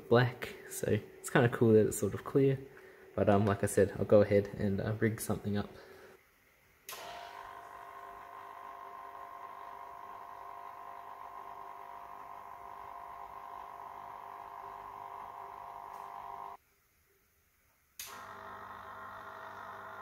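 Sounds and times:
aquarium pump humming: 0:06.9 - 0:16.6, 0:18.0 - 0:20.0.

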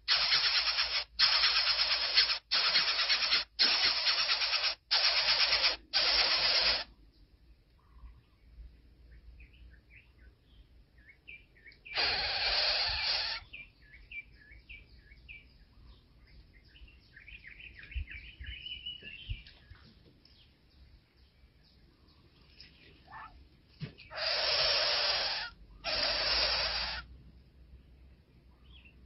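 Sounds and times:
loud harsh hiss: 0:00.0 - 0:06.9, 0:11.9 - 0:13.4, 0:24.1 - 0:27.1
nestling birds chirping: 0:00.0 - 0:29.0.

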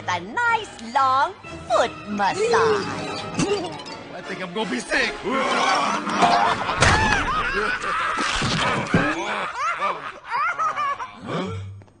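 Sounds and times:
cartoon voices laughing: 0:05.6 - 0:11.3.

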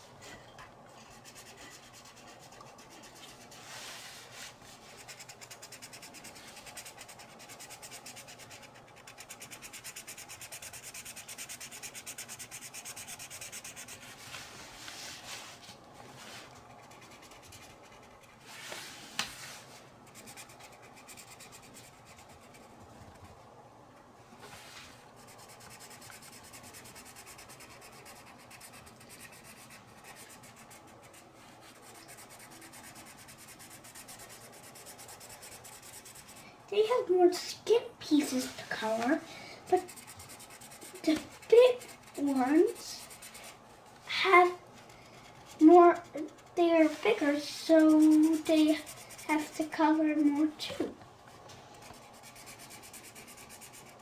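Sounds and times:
marker scribbling on paper: 0:01.1 - 0:04.0, 0:04.7 - 0:14.4, 0:16.7 - 0:18.5, 0:20.1 - 0:22.8, 0:25.2 - 0:37.1, 0:39.7 - 0:43.6, 0:44.4 - 0:50.5, 0:51.8 - 0:54.0.

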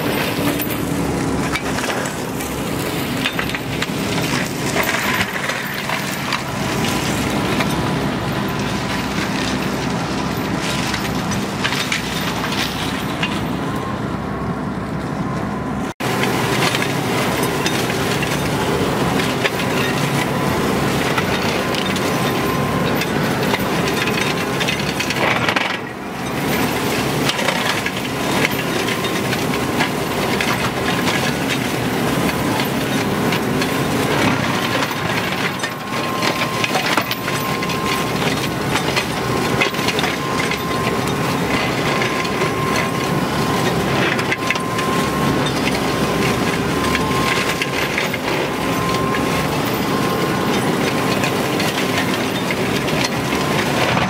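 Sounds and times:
tractor engine: 0:00.0 - 0:54.0
flail mower chopping brush: 0:16.0 - 0:54.0.

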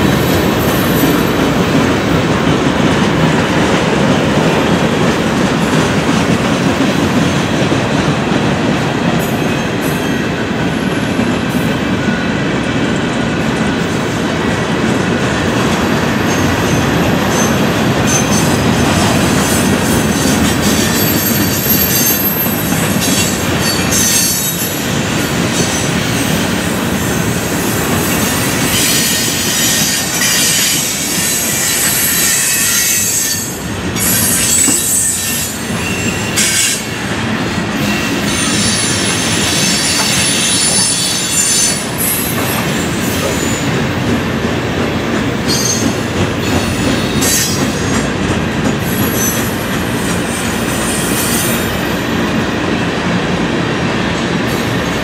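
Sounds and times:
train wheels rumbling on rail: 0:00.0 - 0:55.0
wheel squeal: 0:28.0 - 0:36.8, 0:37.8 - 0:43.6.

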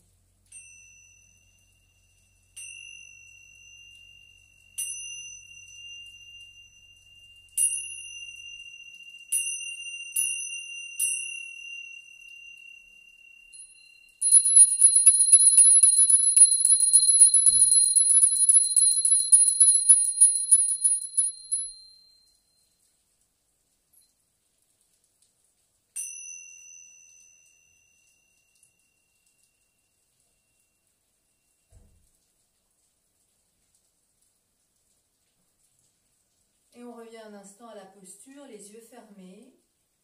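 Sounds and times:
hand cymbals ringing: 0:00.5 - 0:22.1
high trembling ring: 0:00.5 - 0:22.4.

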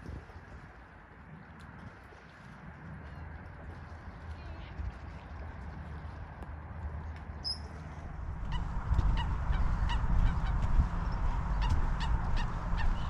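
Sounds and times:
wind rumble on microphone: 0:00.0 - 0:13.0
waterbirds calling: 0:03.0 - 0:13.0.

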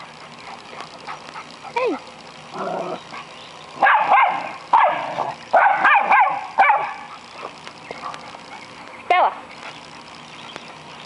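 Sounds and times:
small dogs barking: 0:02.6 - 0:09.4.

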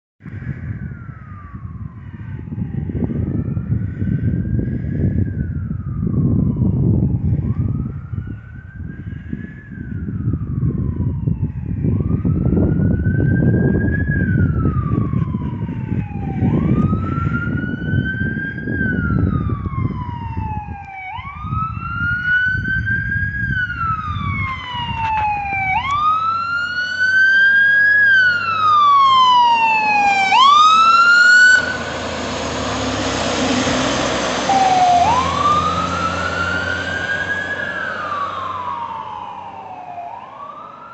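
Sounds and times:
fire engine wail siren: 0:00.2 - 0:40.9
loud rushing noise: 0:31.6 - 0:38.3.

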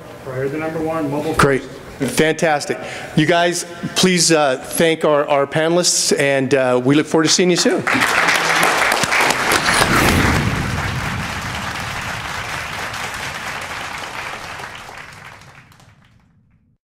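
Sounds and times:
audience applauding: 0:07.8 - 0:16.2.

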